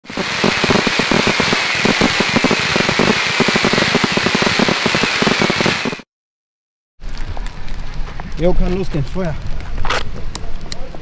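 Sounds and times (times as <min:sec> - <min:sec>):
fireworks crackling: 0:00.0 - 0:06.1.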